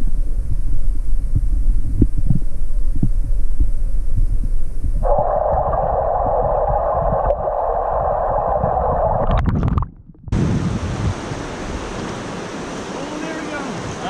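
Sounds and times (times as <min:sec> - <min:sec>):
wind on microphone: 0:00.0 - 0:13.0
muffled underwater stream rushing: 0:00.0 - 0:14.0
river water over riffles: 0:10.4 - 0:14.0.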